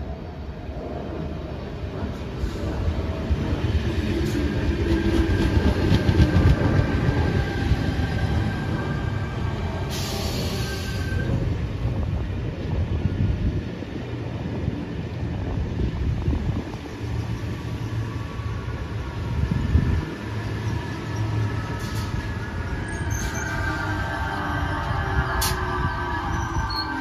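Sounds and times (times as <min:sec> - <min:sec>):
train high whine: 0:00.0 - 0:27.0
train wheels rumbling and clicking: 0:01.9 - 0:17.8
brief air hiss: 0:09.9 - 0:11.1.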